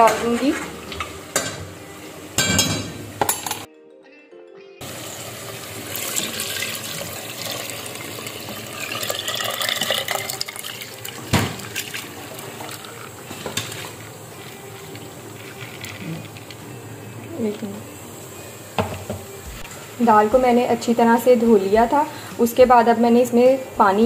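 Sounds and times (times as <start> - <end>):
water pouring and splashing into pot: 4.9 - 16.6.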